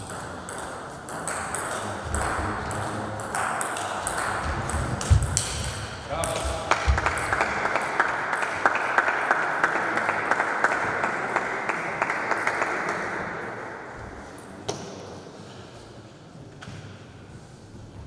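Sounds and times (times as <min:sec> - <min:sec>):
spectators clapping: 0:06.2 - 0:13.5.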